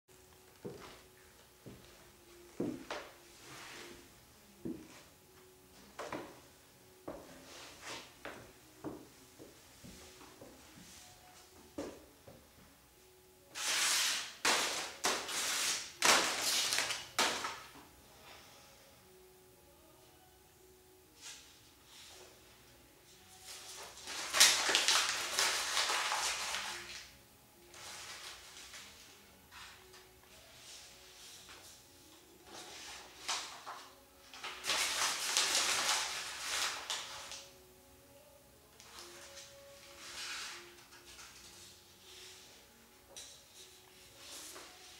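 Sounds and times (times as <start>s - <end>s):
paper balls crackling and rustling: 23.9s - 27.0s, 34.4s - 37.4s.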